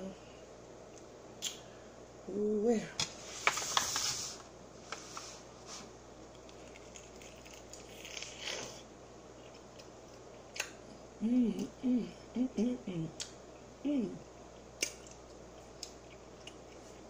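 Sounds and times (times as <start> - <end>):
handling and biting food: 6.2 - 10.9
wet chewing: 6.3 - 8.8.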